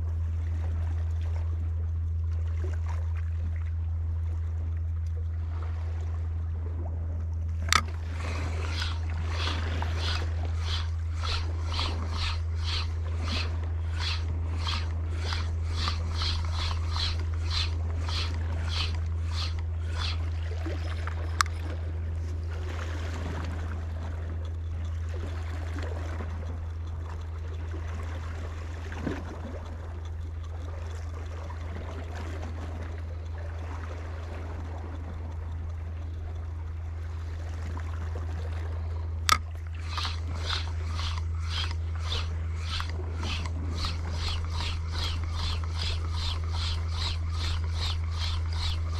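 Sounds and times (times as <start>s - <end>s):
faint water noise: 0.0s - 48.9s
steady low hum: 0.0s - 48.9s
reel clicks: 7.2s - 48.9s
fishing reel cranking with rod swish: 7.6s - 37.8s, 39.2s - 48.9s.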